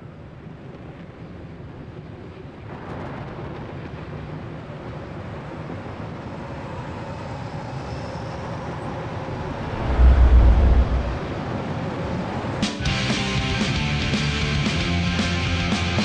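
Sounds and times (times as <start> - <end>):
rumbling noise: 9.1 - 11.6
deep boom: 9.3 - 11.4.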